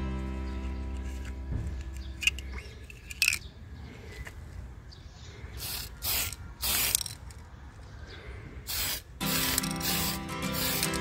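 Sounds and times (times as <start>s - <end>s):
aerosol can spraying: 5.6s - 7.1s, 8.7s - 11.0s.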